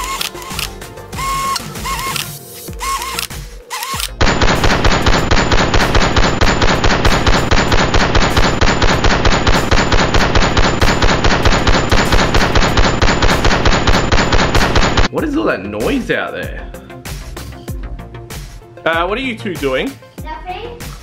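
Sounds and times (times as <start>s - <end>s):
toy blaster rapid fire: 2.8s - 15.1s.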